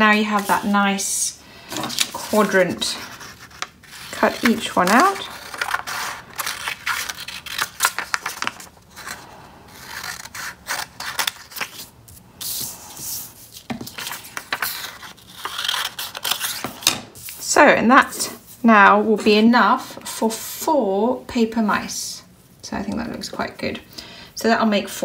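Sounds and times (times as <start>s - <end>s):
paper rustling: 1.6s - 17.4s
scissors snipping paper: 1.9s - 9.2s.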